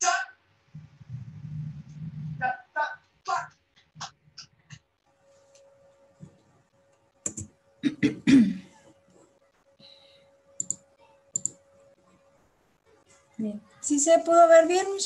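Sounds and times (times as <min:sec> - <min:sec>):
faint steady hum: 0:00.0 - 0:15.0
mouse and keyboard clicks: 0:07.2 - 0:07.5, 0:10.6 - 0:10.8, 0:11.4 - 0:11.6
person coughing: 0:07.8 - 0:08.8.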